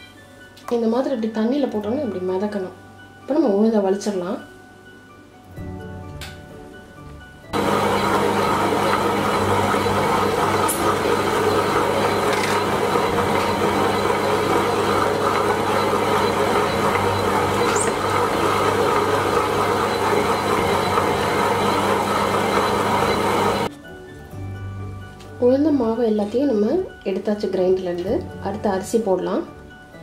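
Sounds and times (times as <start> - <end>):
low motor hum: 7.6 - 23.7
wet grinder grinding: 7.6 - 23.7.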